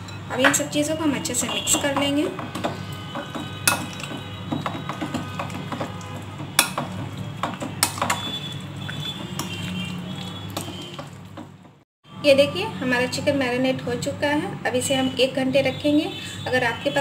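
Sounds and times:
spoon mixing food in bowl: 1.4s - 11.8s
spoon clinking against glass: 3.7s - 4.2s.

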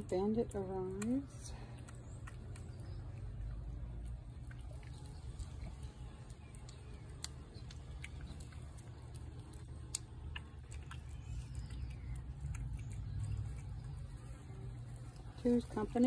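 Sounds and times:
low background rumble: 0.0s - 16.0s
cat chewing and licking: 0.1s - 16.0s.

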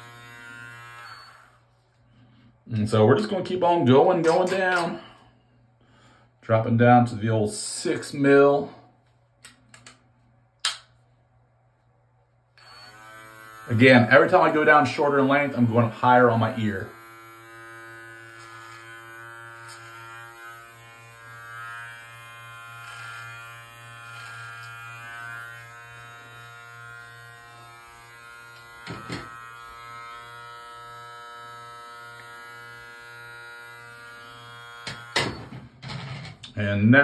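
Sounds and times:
hair trimmer buzzing: 0.0s - 1.7s, 12.6s - 35.6s.

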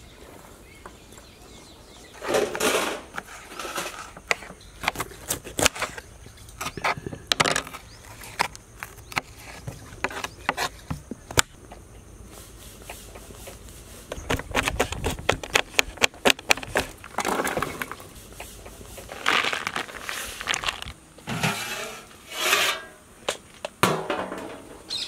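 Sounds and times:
food scraped into a bowl: 21.2s - 23.0s.

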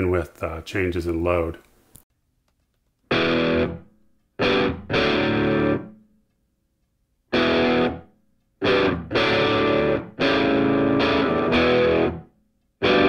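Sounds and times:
distorted electric guitar chords: 3.1s - 6.0s, 7.3s - 13.0s.

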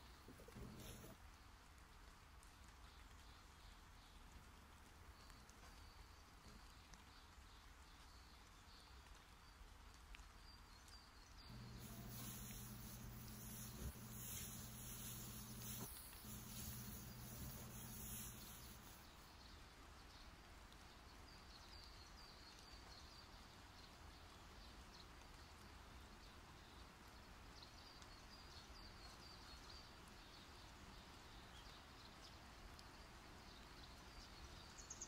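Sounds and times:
low hum: 11.5s - 19.0s
faint high chirps: 11.5s - 19.4s.

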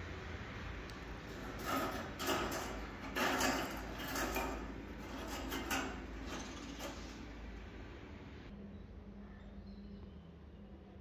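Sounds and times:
mesh scraping against metal grille: 1.1s - 7.9s.

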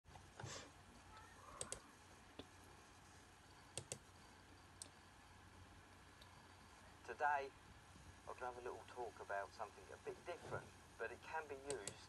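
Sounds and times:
computer mouse clicks: 1.2s - 1.8s, 3.7s - 4.1s, 4.8s - 5.0s, 11.7s - 12.0s.

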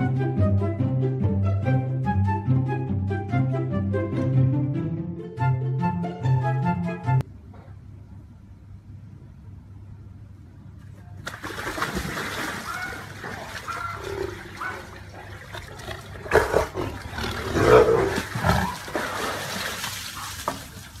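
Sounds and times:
water splashing: 11.2s - 21.0s
tigers snarling: 12.7s - 19.6s.

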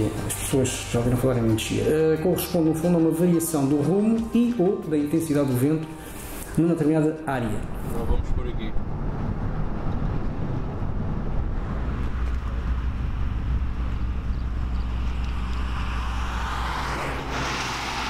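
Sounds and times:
low road rumble: 0.0s - 18.0s
truck tyre hiss: 15.0s - 18.0s.

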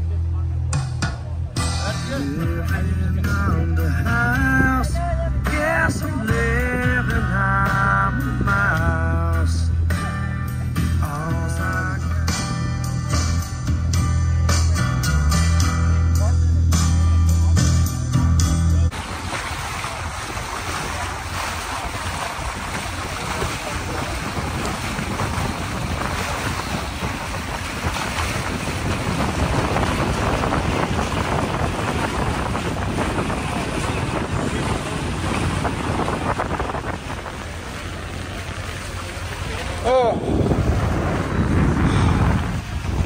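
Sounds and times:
wind noise on microphone: 1.8s - 14.8s, 18.8s - 43.0s
water rushing past hull: 18.9s - 43.0s.

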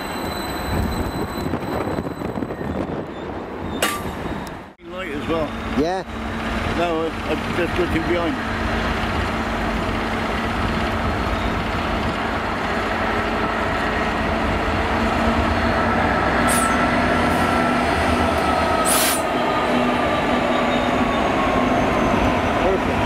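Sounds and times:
diesel locomotive engine droning: 0.0s - 23.0s.

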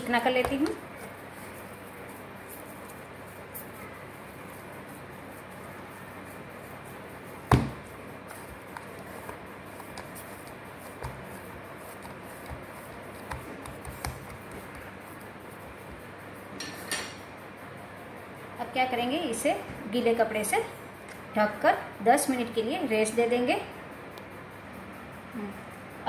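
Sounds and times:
dough squishing by hand: 0.0s - 16.4s
dough thump: 7.4s - 14.9s.

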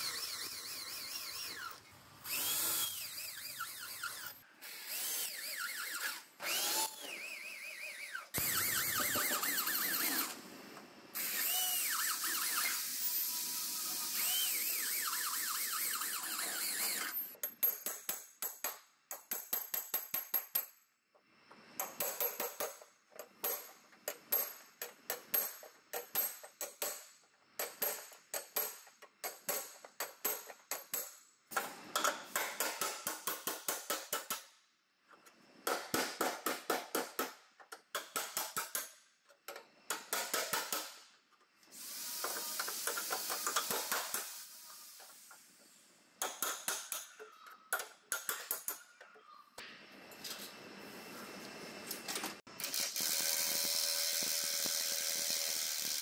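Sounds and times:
hammer striking chisel on sheet metal: 32.0s - 34.5s, 39.9s - 40.9s.

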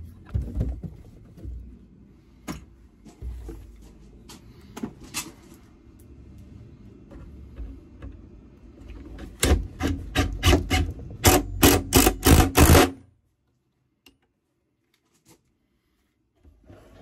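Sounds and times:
cordless drill driving screw: 10.4s - 12.9s.

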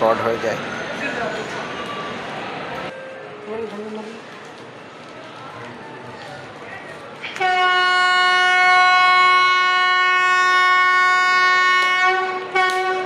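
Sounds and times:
train horn blast: 7.3s - 13.0s.

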